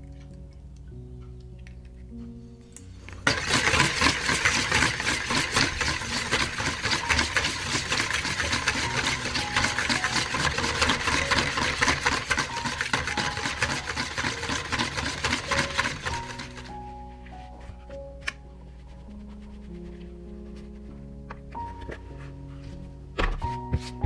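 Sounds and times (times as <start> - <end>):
whisk clattering in bowl: 3.2 - 16.8.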